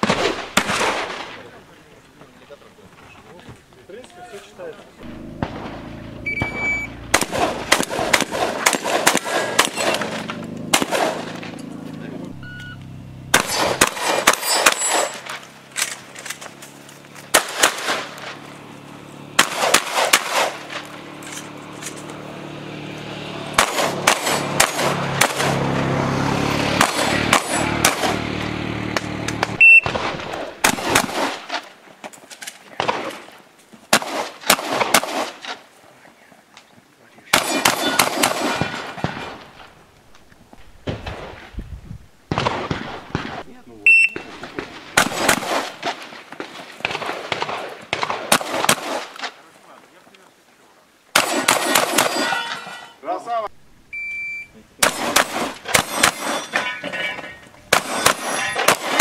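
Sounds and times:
shotgun shots: 0:00.0 - 0:01.6, 0:05.0 - 0:11.6, 0:13.3 - 0:16.6, 0:17.3 - 0:18.4, 0:19.3 - 0:21.6, 0:23.4 - 0:25.9, 0:26.7 - 0:31.8, 0:32.7 - 0:35.6, 0:37.3 - 0:39.8, 0:40.7 - 0:41.5, 0:42.3 - 0:49.4, 0:51.1 - 0:53.0, 0:54.8 - 0:56.9, 0:57.7 - 0:59.0.

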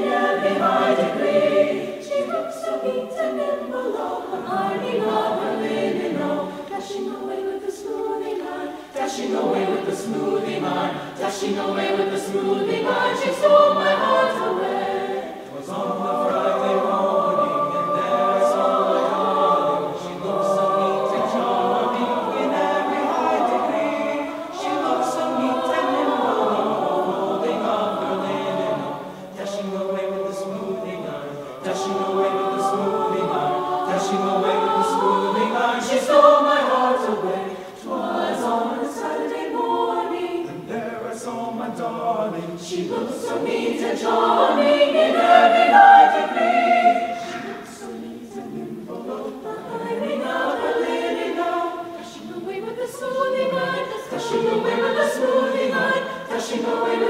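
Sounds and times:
mixed choir singing: 0:00.0 - 0:57.0.

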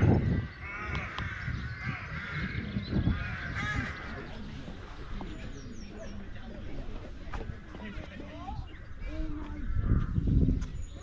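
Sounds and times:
crows cawing: 0:00.0 - 0:04.4.

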